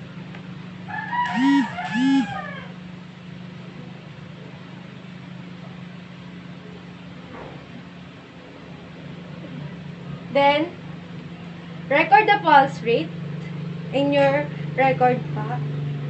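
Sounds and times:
steady low hum: 0.0s - 16.0s
chicken calling: 0.9s - 2.8s.

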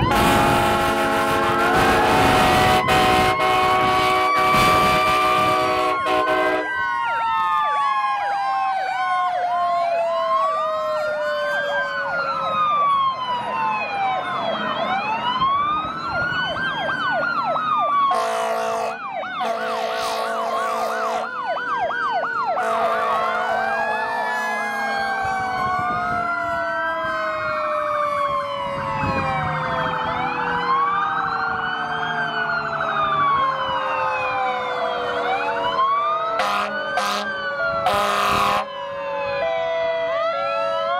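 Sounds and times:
air horn blasts: 0.0s - 6.7s, 18.1s - 21.3s, 22.6s - 24.8s, 36.4s - 38.7s
fire engine sirens wailing: 0.0s - 40.9s.

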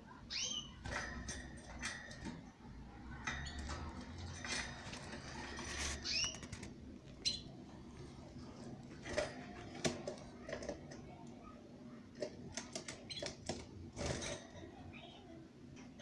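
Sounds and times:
canaries chirping: 0.0s - 8.2s, 12.5s - 15.3s
birds clicking and tapping in cage: 0.3s - 16.0s.

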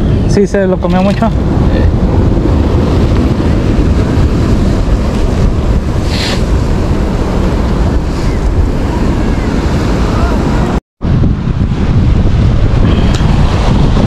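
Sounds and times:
ocean surf: 0.0s - 14.0s
wind buffeting microphone: 0.0s - 14.0s
brief hiss: 6.1s - 6.4s.

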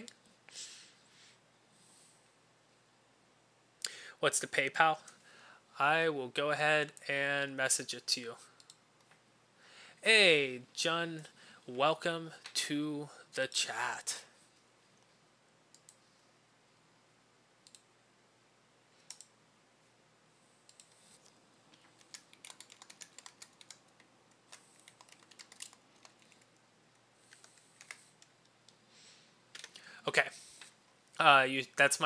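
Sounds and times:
typing on keyboard: 21.8s - 26.6s, 27.3s - 28.3s, 29.5s - 29.8s.

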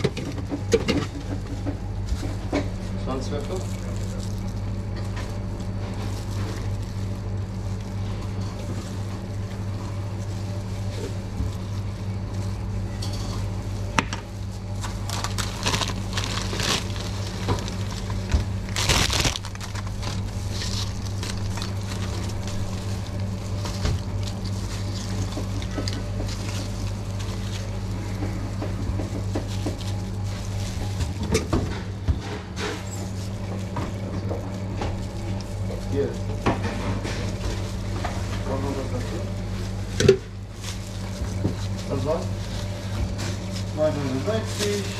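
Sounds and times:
low hum: 0.0s - 44.2s
chip bag crinkling: 2.7s - 31.4s, 39.7s - 44.9s
tortilla chips crunching: 3.4s - 31.3s.

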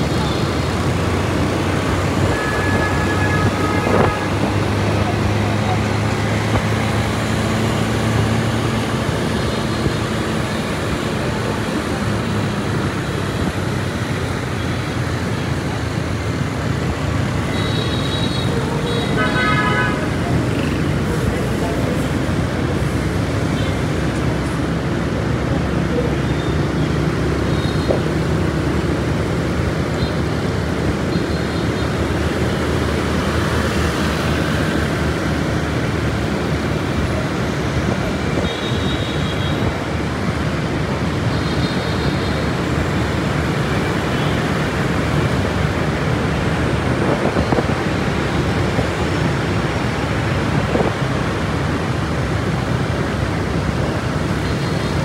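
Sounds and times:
city traffic noise: 0.0s - 55.0s.

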